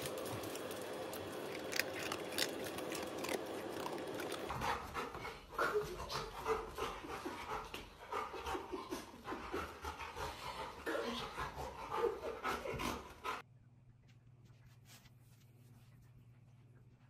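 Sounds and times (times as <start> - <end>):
dog panting: 3.9 - 13.4.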